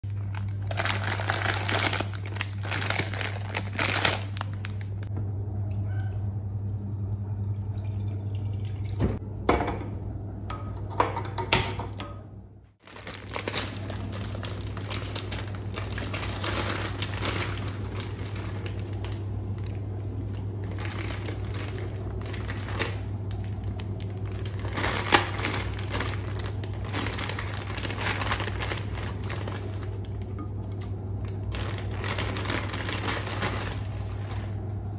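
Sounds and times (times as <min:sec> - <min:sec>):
plastic packet crinkling: 0:00.0 - 0:05.1, 0:12.8 - 0:34.8
low hum: 0:00.0 - 0:34.9.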